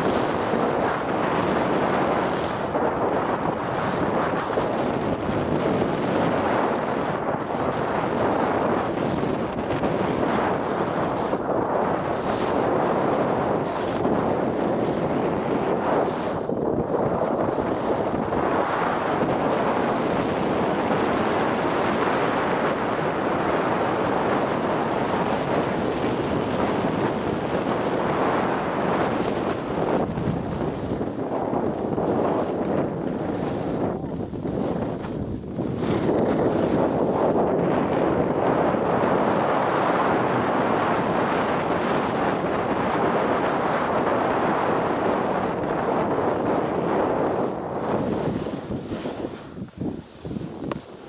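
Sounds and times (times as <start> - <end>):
skis sliding on packed snow: 0.0 - 20.1, 28.0 - 42.1, 45.7 - 51.0
wind buffeting microphone: 0.0 - 51.0.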